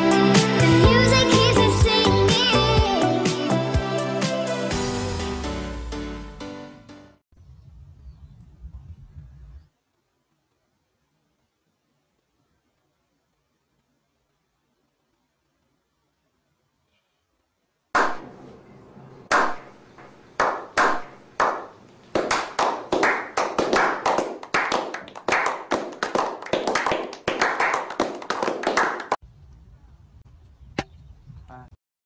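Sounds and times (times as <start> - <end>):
group slow clapping: 18.0 - 18.3, 19.3 - 29.2.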